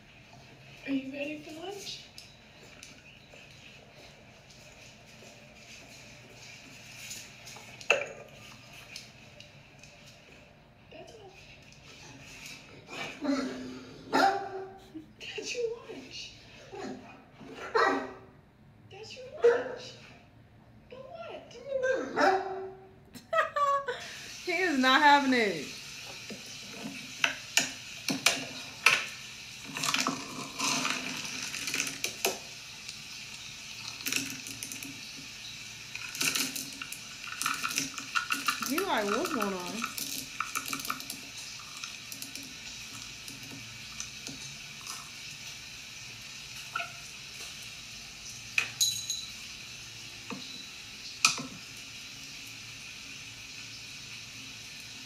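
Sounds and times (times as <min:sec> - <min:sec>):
ceramic bowl clinking: 0:48.6 - 0:49.4.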